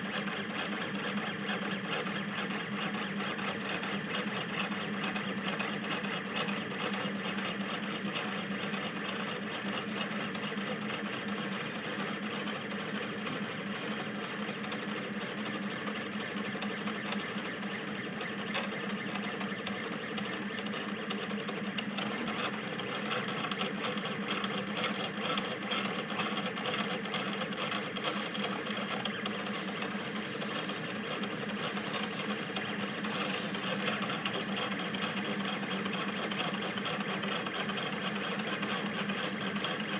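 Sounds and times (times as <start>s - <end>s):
stepper motors buzzing and whining: 26.6s - 39.9s.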